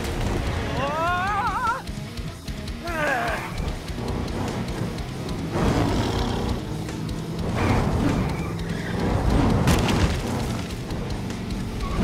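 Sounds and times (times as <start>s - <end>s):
action background music: 0.0s - 12.0s
booming impact sound effects: 9.1s - 10.7s.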